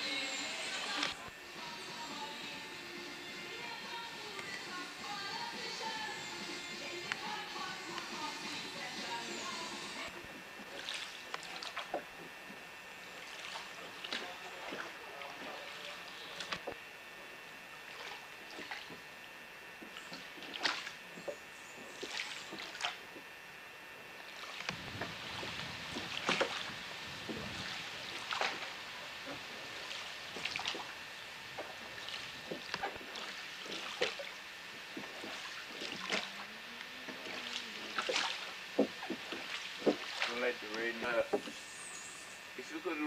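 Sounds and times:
oars dipping and splashing: 0:00.0 - 0:02.6, 0:03.2 - 0:16.8, 0:17.7 - 0:23.3, 0:24.2 - 0:42.0
wooden knocks of oars: 0:32.4 - 0:33.1, 0:38.8 - 0:40.1, 0:41.3 - 0:41.6.

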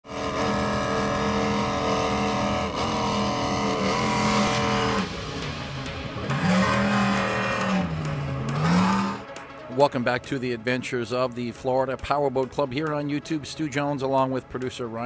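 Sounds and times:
powerboat engines running: 0:00.0 - 0:09.7.

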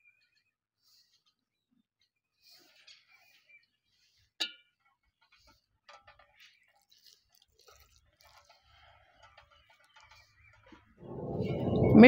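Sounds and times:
water trickling into flour: 0:06.2 - 0:10.8.

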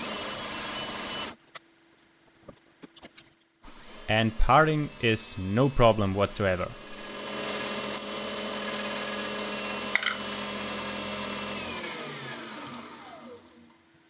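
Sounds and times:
lathe motor whine: 0:00.0 - 0:01.4, 0:03.7 - 0:13.7
lathe spindle coasting down: 0:03.7 - 0:13.6.

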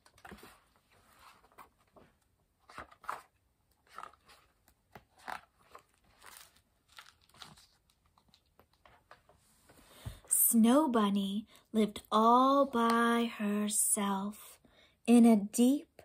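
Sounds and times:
book pages rustling: 0:00.0 - 0:10.2.

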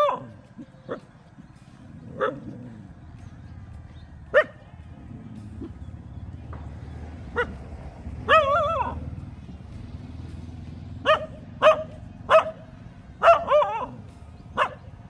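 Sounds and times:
dog barking: 0:00.0 - 0:01.1, 0:02.0 - 0:02.8, 0:04.3 - 0:04.6, 0:07.3 - 0:07.6, 0:08.2 - 0:09.1, 0:11.0 - 0:15.0.

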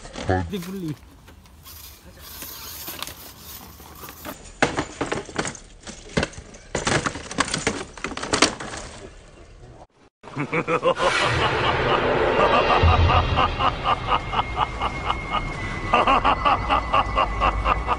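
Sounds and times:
toy truck clattering against stone: 0:04.0 - 0:09.2.

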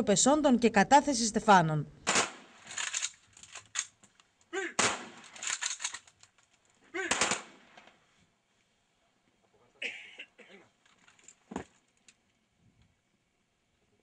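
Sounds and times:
rifle volley: 0:02.0 - 0:03.0, 0:04.7 - 0:06.0, 0:07.0 - 0:08.0
scattered gunshots: 0:02.0 - 0:03.1, 0:04.8 - 0:06.0, 0:07.0 - 0:07.8.

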